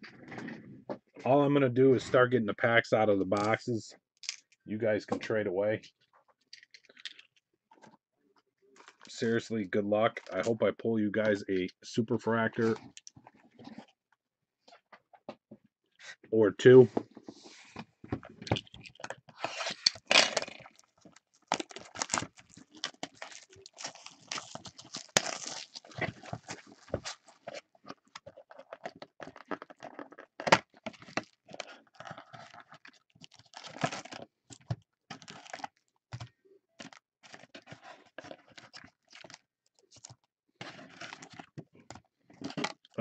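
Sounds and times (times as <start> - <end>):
cardboard and card packs rustling: 12.4 - 13.9, 16.0 - 43.0.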